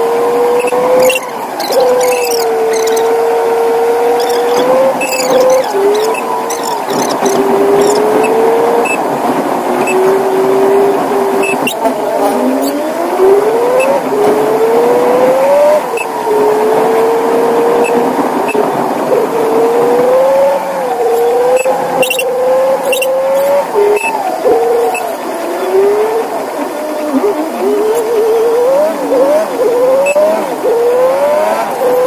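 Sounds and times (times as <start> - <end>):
road noise: 0.0 - 32.0
truck engine whine: 0.0 - 32.0.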